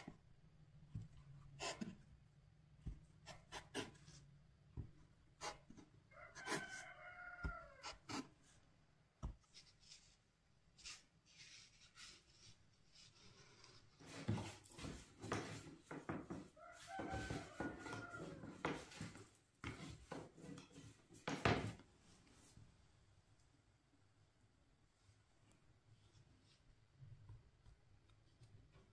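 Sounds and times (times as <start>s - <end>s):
rooster crowing: 6.1s - 8.1s, 16.5s - 18.9s.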